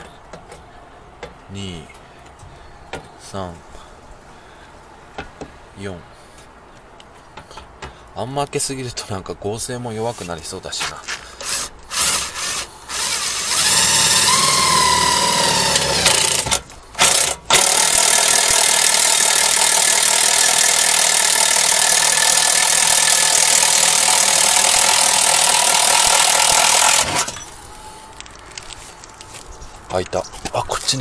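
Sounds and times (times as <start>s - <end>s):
hole saw grinding through steel: 11.4s - 27.6s.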